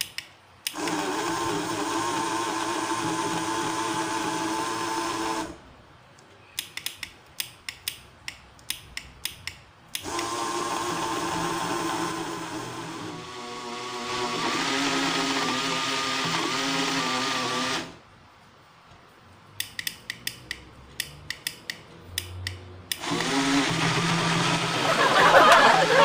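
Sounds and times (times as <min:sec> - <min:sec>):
blender motor whirring: 0:00.7 - 0:05.6, 0:10.0 - 0:18.0, 0:23.0 - 0:26.0.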